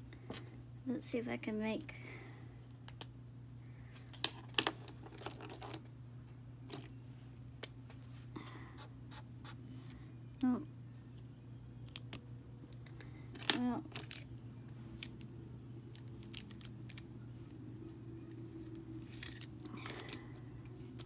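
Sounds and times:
steady low hum: 0:00.0 - 0:21.0
marker caps clicking: 0:15.9 - 0:17.1.

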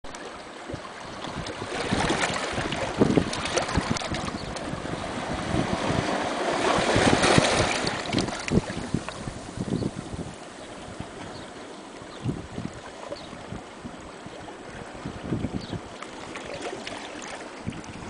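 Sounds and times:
small waves washing over rocks: 0:00.4 - 0:09.6
water crackling among stones: 0:01.2 - 0:04.8, 0:07.0 - 0:09.4.

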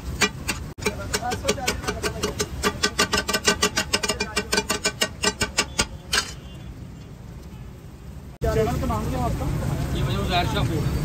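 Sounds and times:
metal spatulas clattering on griddle: 0:00.0 - 0:06.5.

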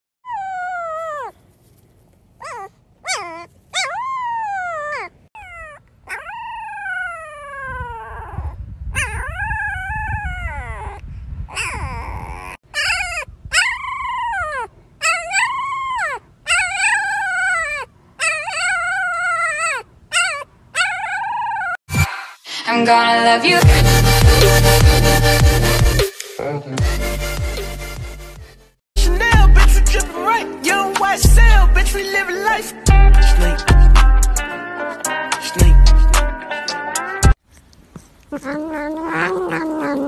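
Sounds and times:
husky puppies howling: 0:12.8 - 0:21.8, 0:38.3 - 0:40.0.

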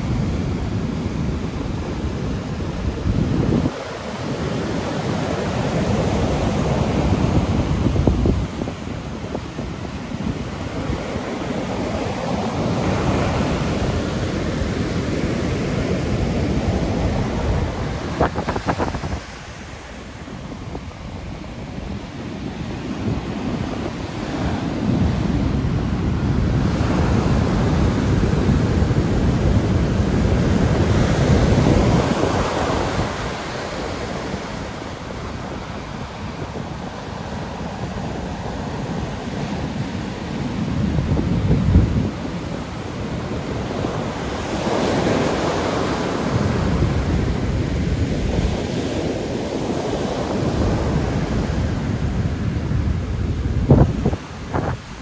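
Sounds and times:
surf breaking on sandy beach: 0:00.0 - 0:55.0
wind buffeting microphone: 0:00.0 - 0:55.0.

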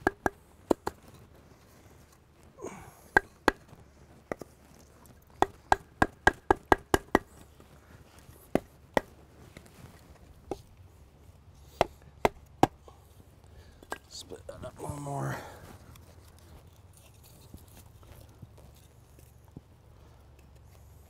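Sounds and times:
wood splitting knocks: 0:05.3 - 0:07.3.

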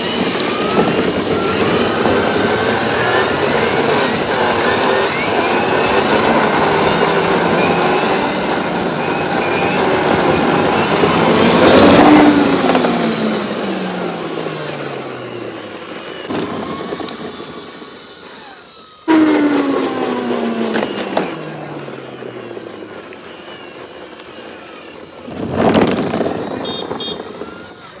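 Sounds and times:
toy car motor whirring: 0:00.0 - 0:28.0
short rushing burst: 0:24.6 - 0:28.0.

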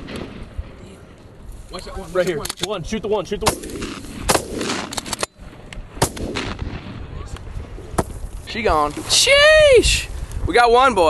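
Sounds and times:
shotguns firing: 0:03.4 - 0:05.4, 0:06.0 - 0:07.1.

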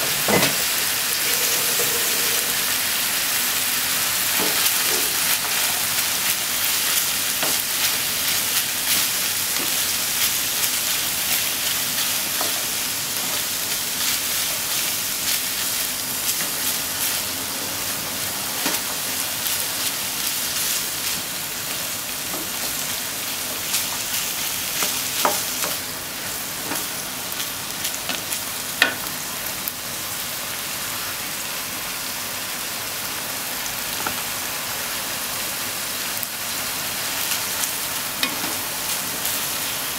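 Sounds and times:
food sizzling in a frying pan: 0:00.0 - 0:39.9
spatula scraping a pan: 0:00.2 - 0:03.0.

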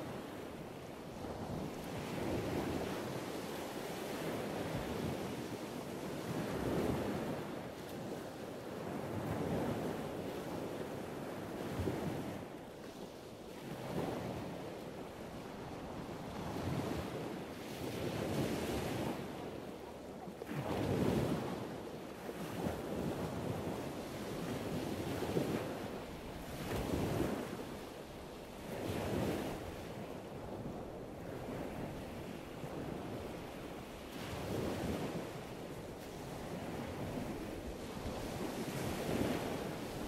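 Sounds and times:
wind buffeting microphone: 0:28.6 - 0:40.0.

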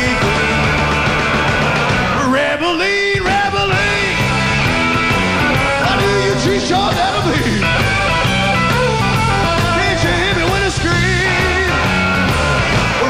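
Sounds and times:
electric guitar lead: 0:00.0 - 0:02.3, 0:03.2 - 0:13.0
bass: 0:00.0 - 0:13.0
drums: 0:00.0 - 0:13.0.

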